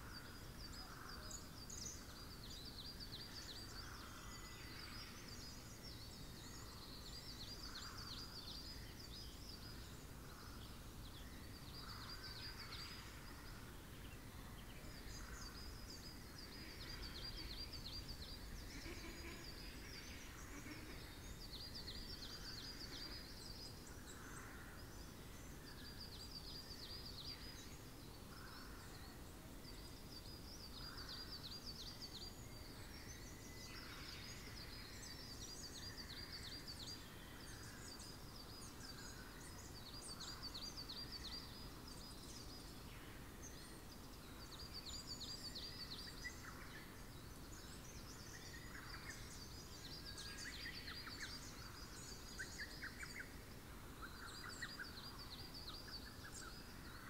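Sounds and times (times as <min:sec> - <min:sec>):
bird calls: 0:11.4 - 0:27.8.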